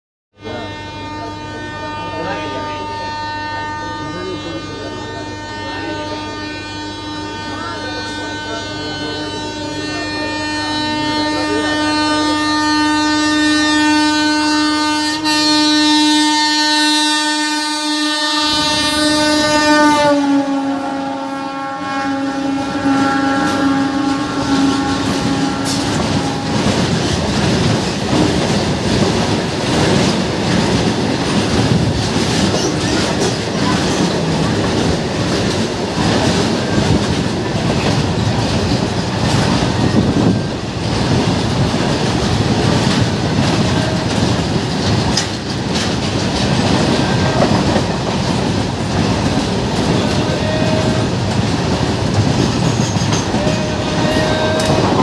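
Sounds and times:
train horn: 0:00.3 - 0:55.0
freight train rumbling past: 0:00.4 - 0:55.0
wheels clacking over rail joints: 0:22.8 - 0:55.0.

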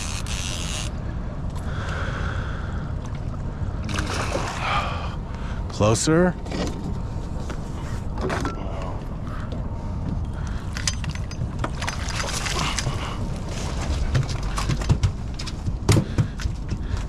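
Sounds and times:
water splashing: 0:02.9 - 0:05.1.

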